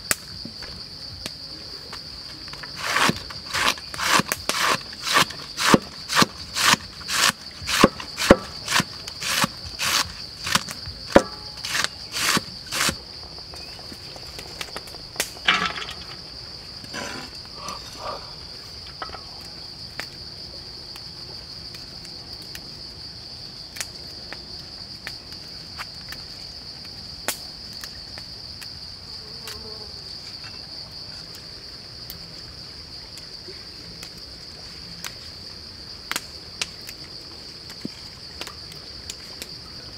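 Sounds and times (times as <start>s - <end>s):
insects droning: 0.0s - 39.9s
cleaver chopping on wooden board: 2.8s - 13.0s.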